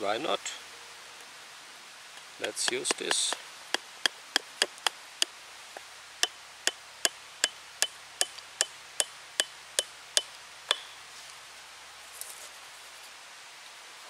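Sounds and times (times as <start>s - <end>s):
wooden handle knocking wedge: 2.4s - 3.4s, 4.0s - 5.0s.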